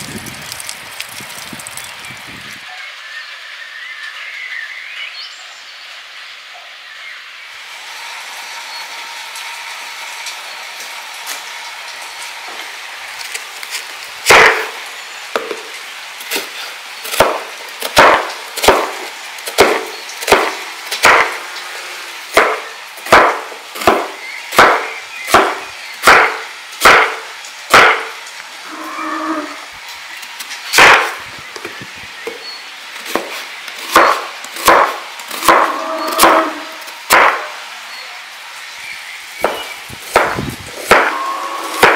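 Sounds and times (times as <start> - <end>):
knife striking wooden cutting board: 17.1 - 17.4, 18.0 - 19.0, 19.6 - 21.3, 22.4 - 28.0, 33.9 - 36.4, 39.4 - 41.2.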